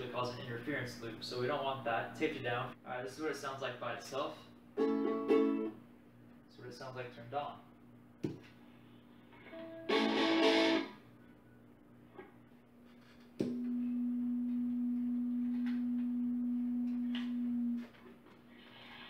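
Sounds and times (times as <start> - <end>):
ukulele chord strummed: 4.8 - 5.7
low amplifier feedback tone: 13.4 - 18.0.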